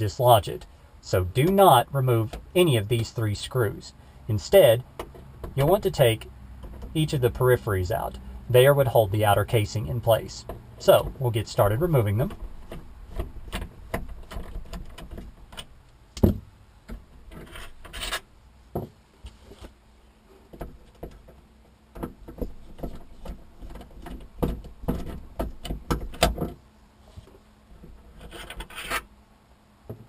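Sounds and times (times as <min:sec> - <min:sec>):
metal rubbing and scraping: 0:17.2 - 0:18.3, 0:27.9 - 0:29.1.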